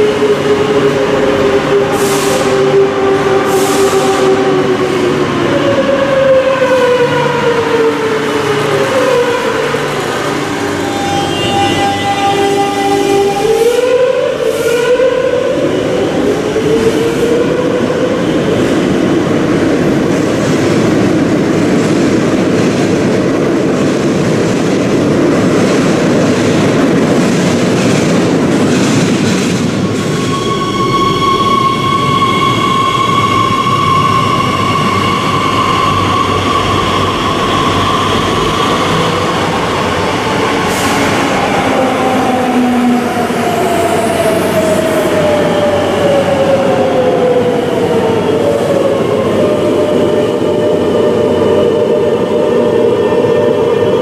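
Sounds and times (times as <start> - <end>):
train wheels rumbling on track: 0.0 - 54.0
train braking whine: 29.7 - 54.0
high squeal: 29.8 - 41.5.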